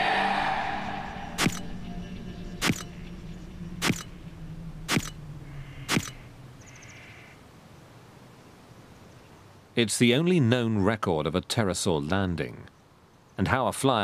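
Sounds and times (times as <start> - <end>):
low steady tone: 0.0 - 7.0
camera shutter clicks: 2.6 - 2.9, 3.8 - 4.1, 4.9 - 5.2, 5.9 - 6.2.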